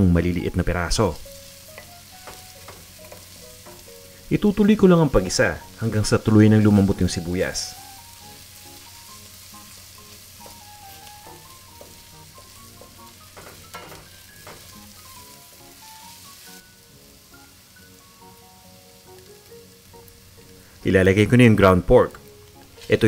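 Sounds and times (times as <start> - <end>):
onion sizzling in hot oil: 0.0 - 23.0
soft background music: 0.0 - 23.0.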